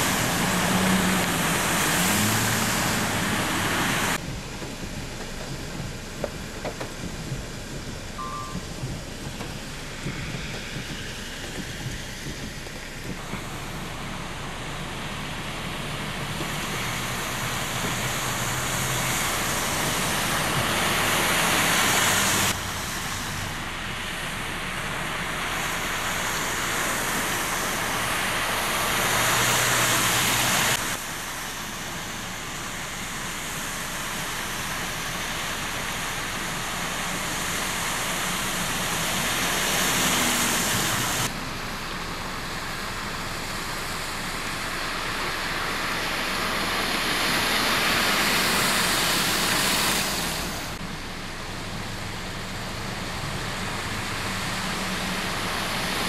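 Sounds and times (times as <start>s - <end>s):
low engine hum: 0.0s - 56.0s
trucks splashing through floodwater: 0.0s - 56.0s.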